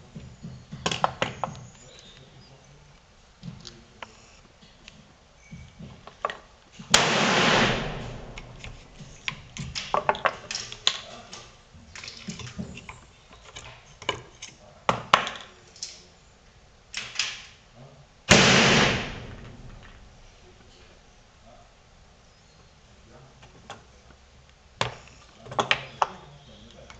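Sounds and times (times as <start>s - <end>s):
loud cannon bang: 6.9s - 10.0s, 18.3s - 20.5s
tools clicking and knocking on bench: 8.3s - 11.1s, 12.0s - 15.6s.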